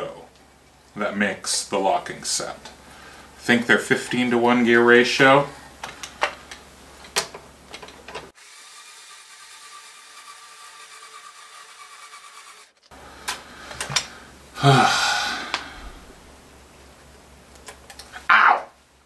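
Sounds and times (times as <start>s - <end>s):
motorised string winder whirring: 8.4s - 12.9s.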